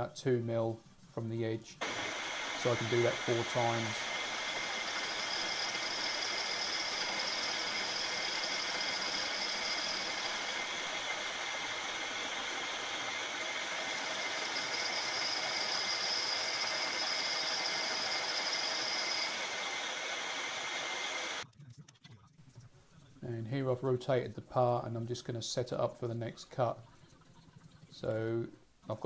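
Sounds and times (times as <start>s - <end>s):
milling machine cutting metal: 1.8s - 21.4s.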